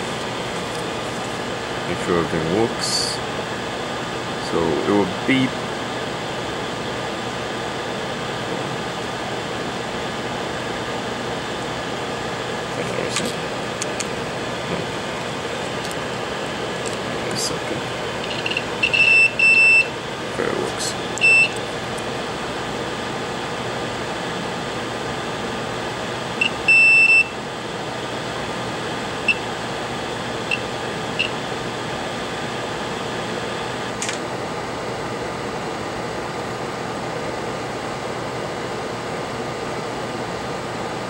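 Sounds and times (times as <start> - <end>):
multimeter continuity beeps: 18.2 - 20.0, 21.2 - 21.7, 26.4 - 27.4, 29.2 - 29.5, 30.4 - 31.4.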